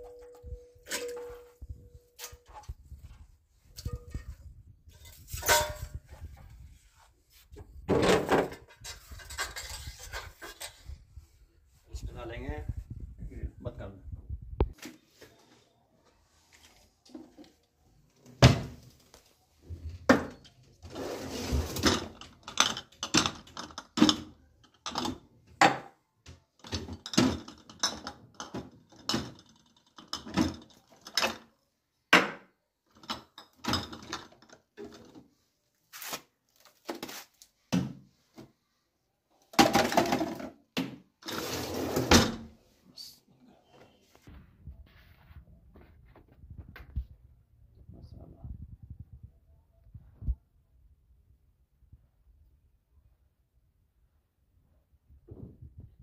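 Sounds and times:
containers and utensils clattering: 0.0 - 6.4, 7.9 - 11.0, 20.1 - 25.9, 26.6 - 31.6, 32.9 - 35.3, 39.5 - 42.2.

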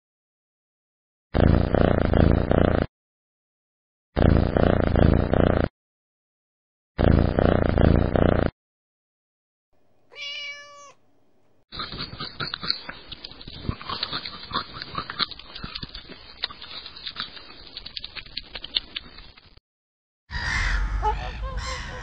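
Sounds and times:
kitten meowing: 10.1 - 11.0
koala chewing leaves: 11.8 - 19.5
geese calling: 20.3 - 22.0.

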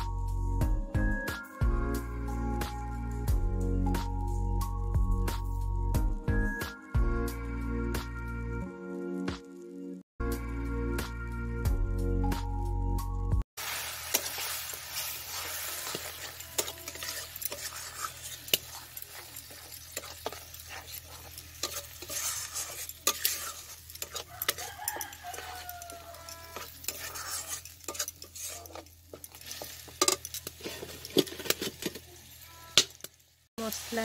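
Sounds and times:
metal spatula scraping a pan: 13.6 - 32.4
paste sizzling in a pan: 13.6 - 34.0.

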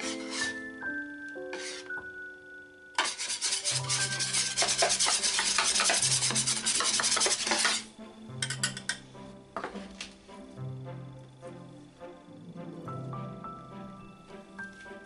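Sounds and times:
whisk scraping metal tray: 0.0 - 0.6, 1.5 - 1.9, 3.0 - 8.9.

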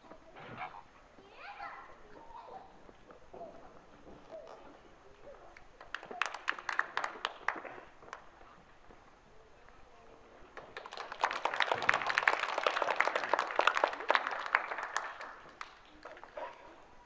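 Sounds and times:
audience clapping: 5.8 - 8.2, 10.5 - 16.6.

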